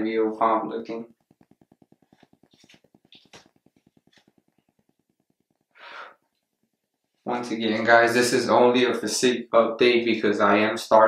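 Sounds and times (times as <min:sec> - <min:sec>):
fast ticking microphone static: 0:00.0 - 0:11.0
short breathy hiss: 0:05.7 - 0:06.2.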